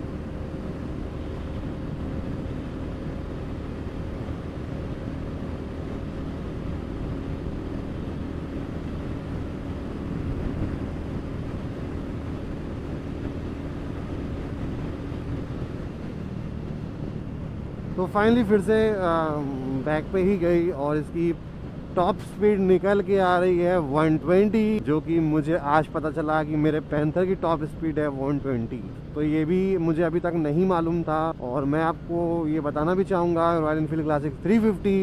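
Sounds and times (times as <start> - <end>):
wind rushing over microphone: 0.0 - 25.4.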